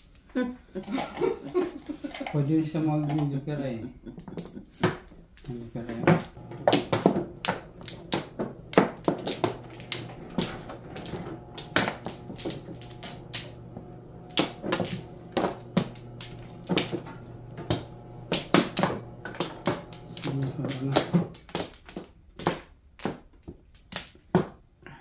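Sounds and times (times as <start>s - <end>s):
mahjong tiles clacking: 4.4s - 13.6s, 18.3s - 24.3s
low steady hum: 5.5s - 21.6s.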